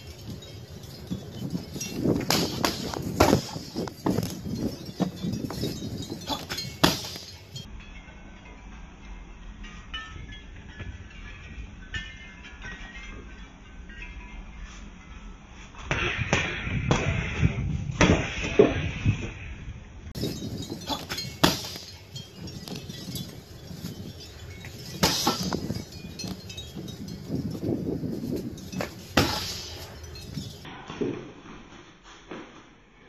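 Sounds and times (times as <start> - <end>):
strikes thudding on a heavy bag: 28.8 - 29.7.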